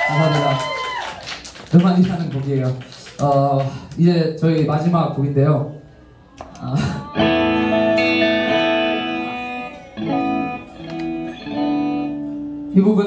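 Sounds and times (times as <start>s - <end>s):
guitar chords ringing: 7.1s - 13.0s.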